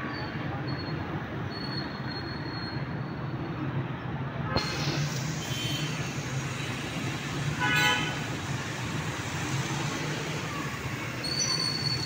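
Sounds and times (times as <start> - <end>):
road traffic engine hum: 0.0 - 12.0
vehicle horn honking: 7.6 - 8.2
thin high squeal: 11.2 - 12.0.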